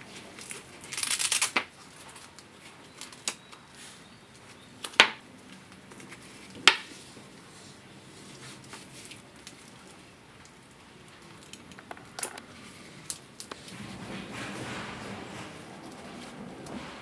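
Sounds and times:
hook-and-loop strap tearing: 0.4s - 1.7s.

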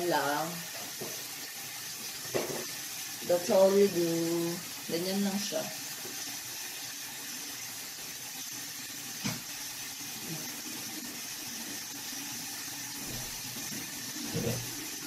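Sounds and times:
tap running into sink: 2.1s - 2.8s, 9.2s - 9.6s, 13.0s - 14.8s.

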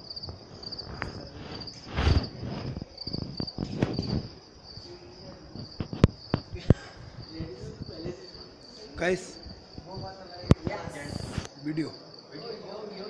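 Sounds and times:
crickets chirping: 0.0s - 13.0s
loud rustle: 0.9s - 4.4s.

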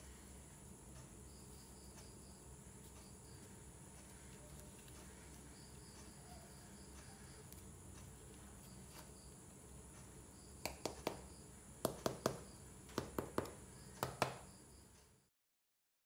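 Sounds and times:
faint cricket chirping: 0.0s - 15.3s
hand patting pizza crust: 10.6s - 14.5s.

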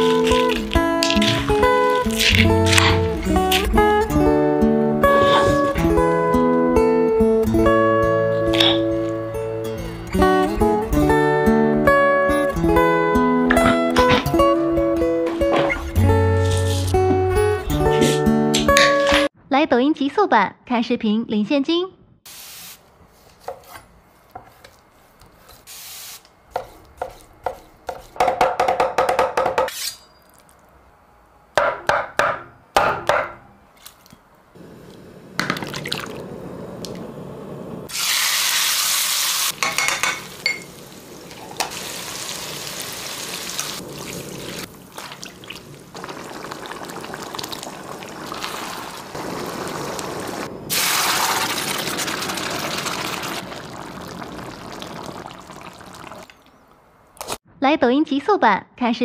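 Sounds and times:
liquid boiling and bubbling: 0.0s - 4.1s, 34.6s - 38.0s, 40.4s - 56.6s.

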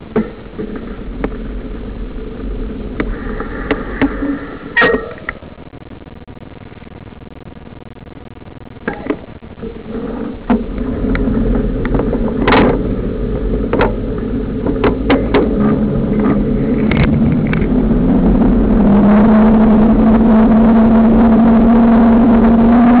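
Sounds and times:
sharp clicks and rattles: 0.0s - 19.6s
motorcycle engine accelerating: 10.4s - 23.0s.

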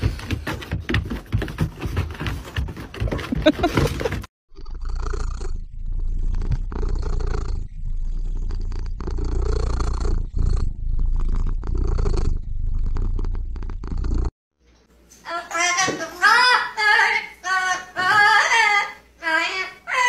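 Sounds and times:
cat purring: 4.8s - 14.3s.

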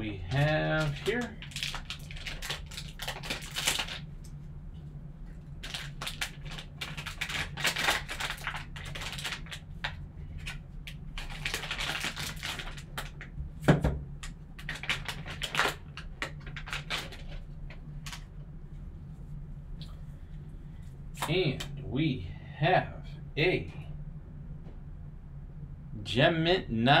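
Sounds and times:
steady low hum: 0.0s - 27.0s
foil pack crinkling and tearing: 0.3s - 4.0s, 5.6s - 13.3s, 14.6s - 17.4s.

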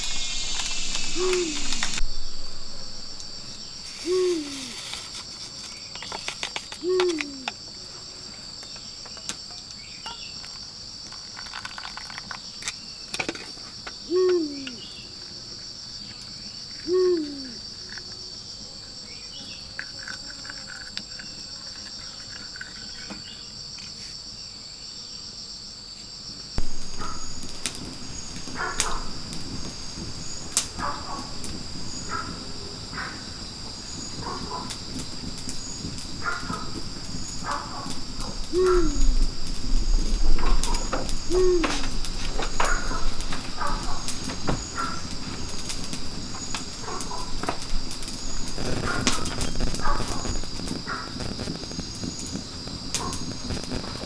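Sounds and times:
low falling hoot: 0.0s - 4.9s, 6.8s - 7.6s, 14.0s - 15.0s, 16.8s - 17.6s, 26.6s - 34.9s, 35.8s - 45.6s
insects chirping: 0.0s - 54.0s.

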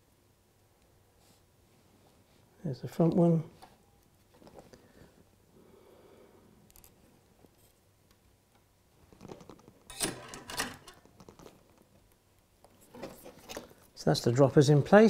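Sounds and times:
handling wire and tools: 6.7s - 14.0s.

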